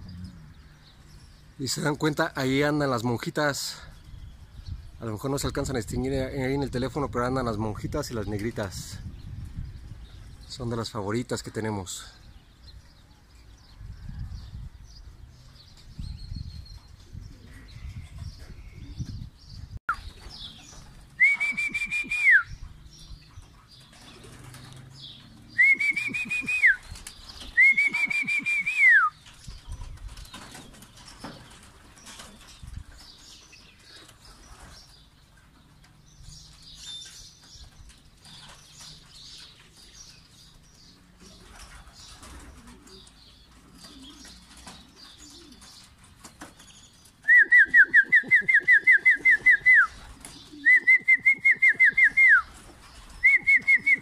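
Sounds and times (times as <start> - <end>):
rapid trilling whistle: 21.2 - 22.5, 27.6 - 29.1.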